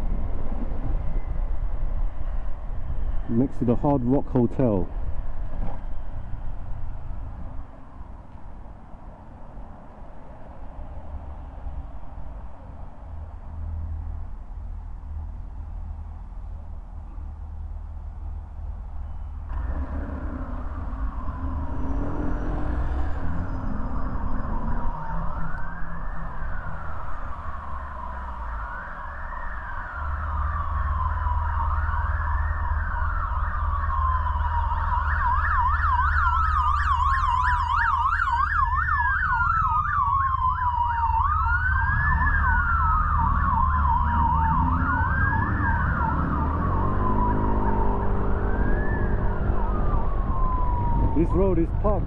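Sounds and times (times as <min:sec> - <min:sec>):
siren wailing: 0:19.5 - 0:52.0
fast siren yelp: 0:20.6 - 0:52.0.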